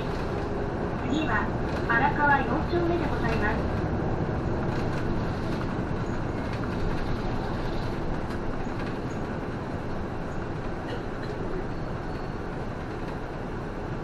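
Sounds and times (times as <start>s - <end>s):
bus engine and road noise: 0.0s - 14.0s.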